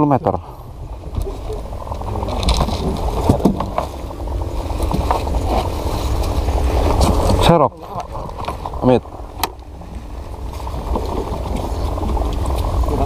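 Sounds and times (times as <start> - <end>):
wind rumbling on microphone: 0.0 - 13.0
light knocks from boat: 2.2 - 4.1, 4.7 - 12.7.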